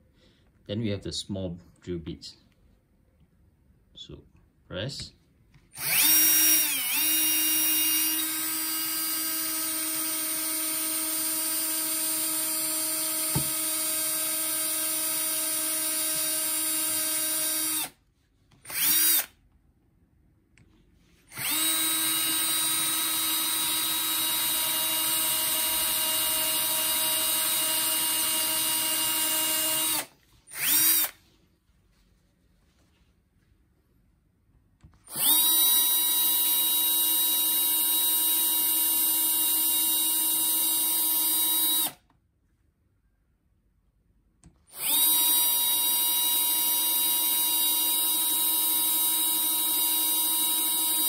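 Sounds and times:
cordless drill whining: 5.6s - 19.4s, 21.2s - 31.3s, 34.9s - 42.1s, 44.5s - 51.0s.

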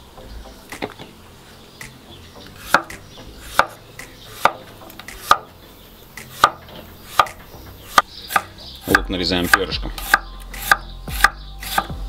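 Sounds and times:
knife chopping on wooden board: 2.6s - 5.5s, 6.2s - 12.0s.

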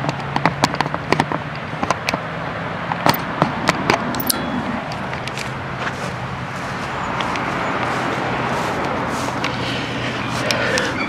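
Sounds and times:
footsteps through long grass: 4.6s - 11.0s.

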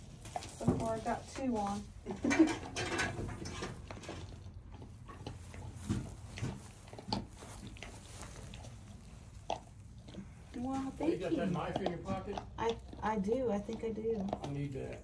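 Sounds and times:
rustling in straw: 5.3s - 10.0s.

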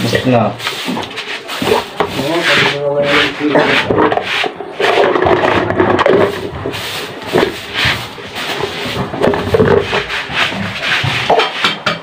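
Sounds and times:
plastic cups scraping on table: 0.0s - 12.0s.

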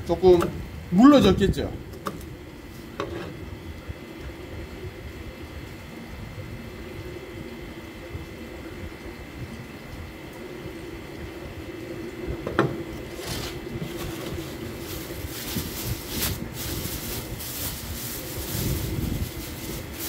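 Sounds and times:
steady hum: 0.0s - 20.0s
plastic bag crinkling: 13.1s - 20.0s.

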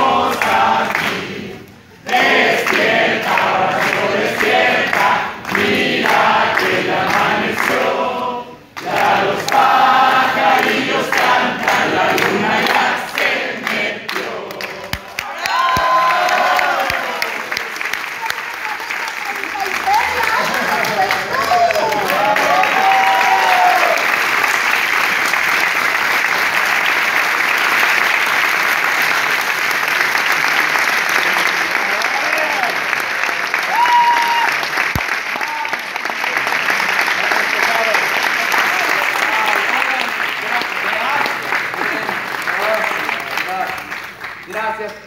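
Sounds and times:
crowd singing a birthday song: 0.0s - 15.2s
hand clapping: 2.1s - 7.9s, 8.8s - 9.8s, 10.5s - 22.8s, 23.8s - 45.0s.

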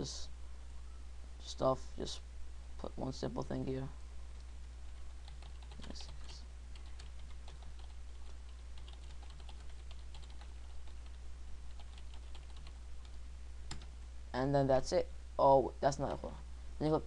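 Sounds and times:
low electrical hum: 0.0s - 17.0s
keyboard typing clicks: 8.8s - 11.2s.

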